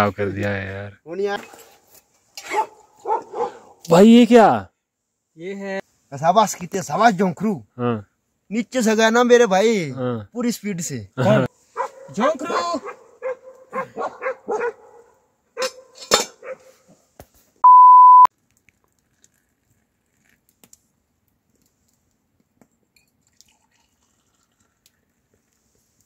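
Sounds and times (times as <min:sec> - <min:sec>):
dog barking: 0:02.4 - 0:03.8, 0:11.8 - 0:16.9
loud beep tone: 0:17.6 - 0:18.3.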